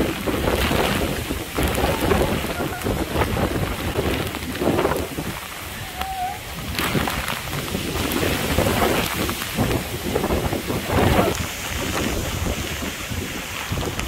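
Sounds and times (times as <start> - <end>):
heavy rain: 0.0 - 14.0
wind gusts buffeting microphone: 0.0 - 14.0.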